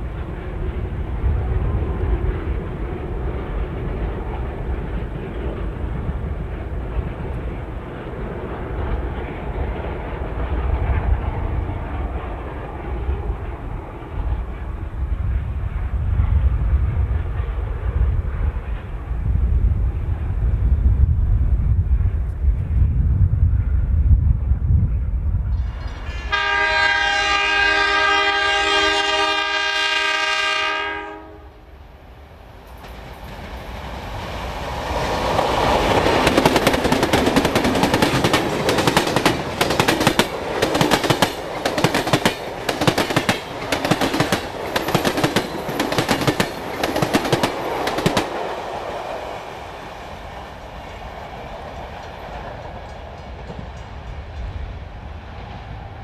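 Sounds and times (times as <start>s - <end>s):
diesel train engine passing: 0.0s - 56.0s
locomotive air horn chord: 26.1s - 31.6s
wheels clattering over rail joints: 35.3s - 48.4s.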